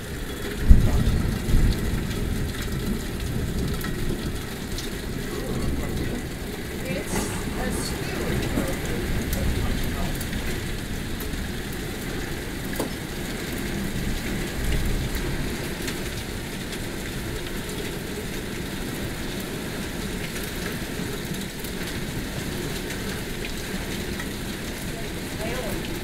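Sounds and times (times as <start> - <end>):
deep low thunder rumble: 0.0 - 17.4
heavy rain pattering: 0.0 - 26.0.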